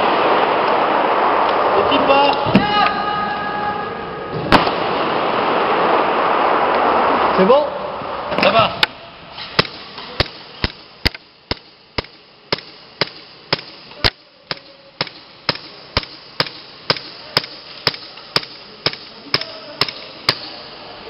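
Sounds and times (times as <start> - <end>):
airsoft gun firing single shots: 9.6 - 20.6.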